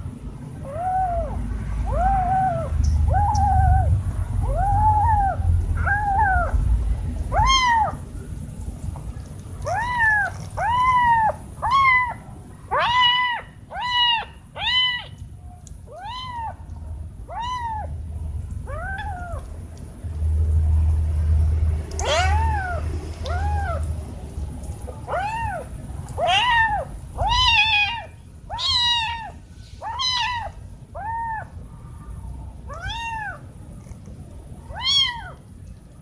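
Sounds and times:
kitten meowing: 0:00.6 - 0:06.7, 0:07.3 - 0:08.0, 0:09.6 - 0:15.2, 0:15.8 - 0:16.6, 0:17.2 - 0:18.0, 0:18.6 - 0:19.5, 0:22.0 - 0:23.9, 0:25.0 - 0:31.6, 0:32.7 - 0:33.4, 0:34.7 - 0:35.4.

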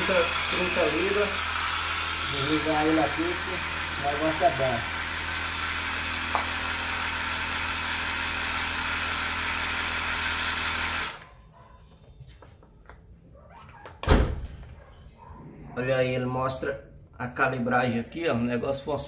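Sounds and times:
air compressor humming: 0:00.0 - 0:11.2.

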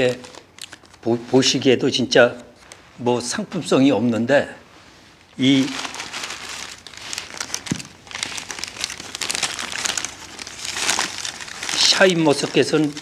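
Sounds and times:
crinkly wrapping being handled: 0:00.0 - 0:01.7, 0:04.8 - 0:13.0.

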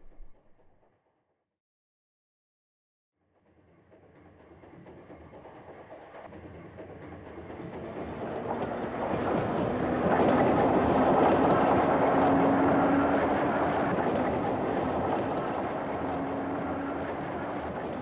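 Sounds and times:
low hum: 0:00.0 - 0:00.7
electric train passing: 0:03.7 - 0:18.0.

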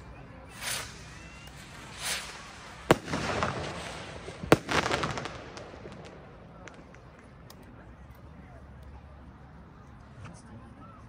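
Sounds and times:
firework rockets bursting: 0:00.4 - 0:07.4
firework crackling: 0:00.4 - 0:07.6.

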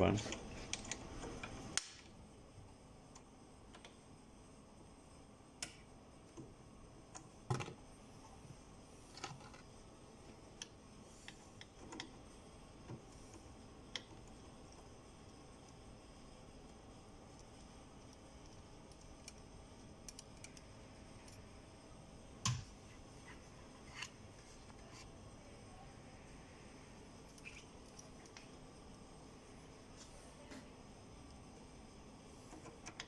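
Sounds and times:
small clicks and taps of tools: 0:05.6 - 0:06.5, 0:12.9 - 0:14.3.

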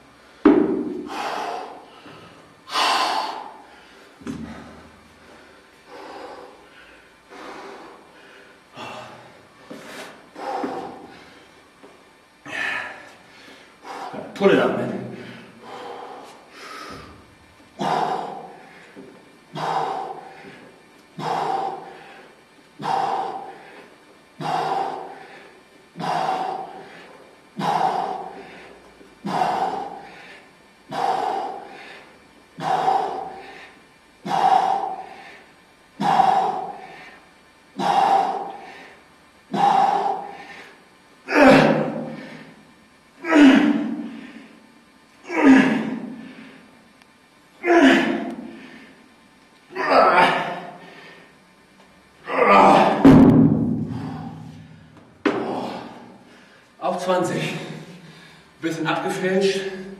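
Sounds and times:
man breathing out forcefully: 0:00.1 - 0:11.6, 0:15.1 - 0:44.7, 0:52.3 - 0:56.8.

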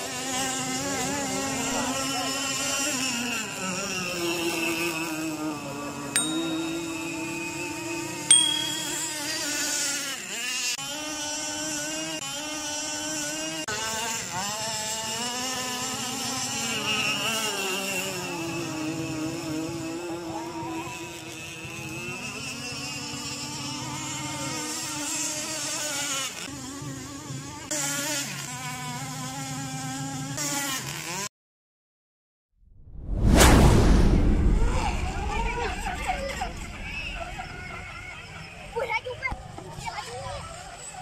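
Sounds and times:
model powerboat motor running: 0:00.0 - 0:05.8, 0:10.3 - 0:31.2.

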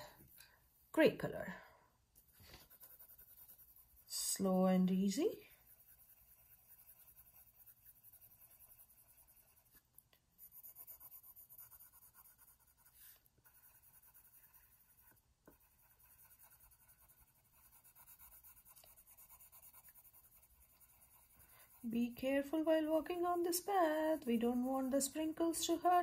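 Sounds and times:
pencil scratching on paper: 0:02.2 - 0:26.0.

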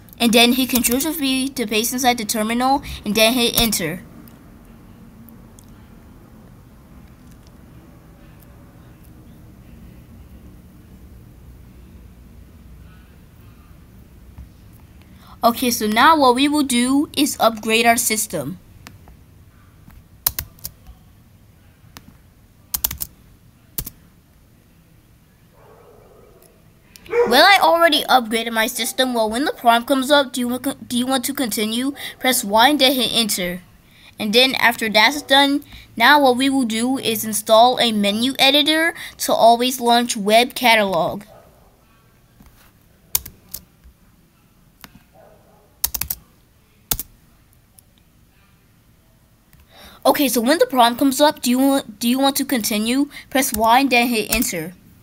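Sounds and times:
keyboard keys clicking: 0:20.3 - 0:20.9, 0:22.7 - 0:23.1, 0:23.8 - 0:24.0, 0:43.2 - 0:43.7, 0:45.8 - 0:46.2, 0:46.9 - 0:47.1.

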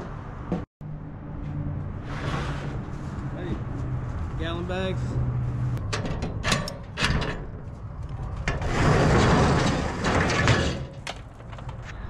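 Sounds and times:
metal roll-up door rattling: 0:05.8 - 0:07.7, 0:08.3 - 0:11.8.

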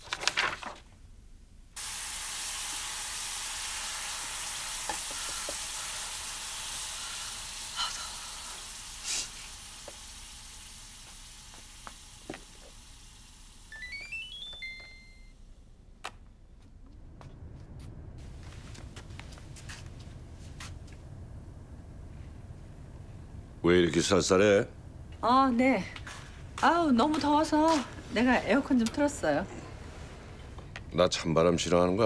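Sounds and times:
food sizzling in frying pan: 0:01.8 - 0:15.2
electronic beeps: 0:13.7 - 0:15.4.

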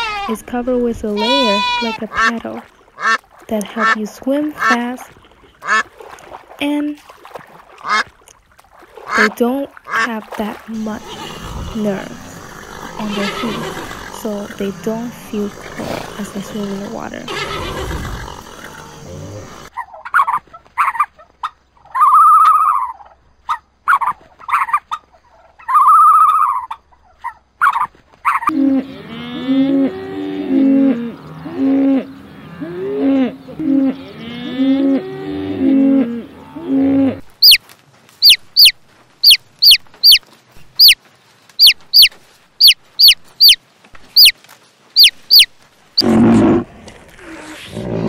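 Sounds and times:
horses neighing: 0:01.0 - 0:02.3, 0:10.8 - 0:19.7, 0:28.5 - 0:37.3, 0:46.0 - 0:48.0
cattle mooing: 0:10.8 - 0:19.7, 0:28.5 - 0:37.3
chicks peeping: 0:38.2 - 0:40.2, 0:41.6 - 0:43.6, 0:45.0 - 0:45.5.

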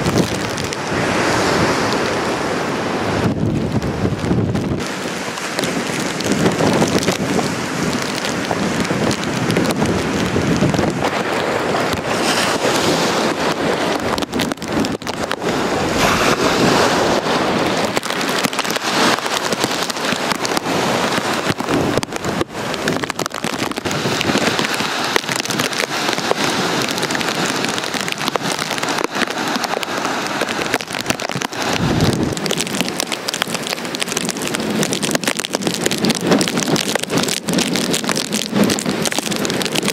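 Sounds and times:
storm wind buffeting microphone: 0:00.0 - 0:39.9
surf rushing: 0:00.0 - 0:39.9.

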